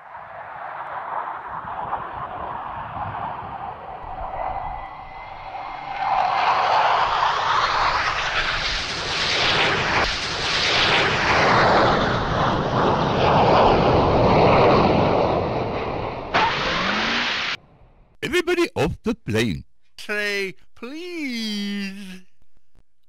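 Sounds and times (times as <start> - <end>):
airplane engine roar: 0.6 - 17.6
different noise: 18.2 - 23.0.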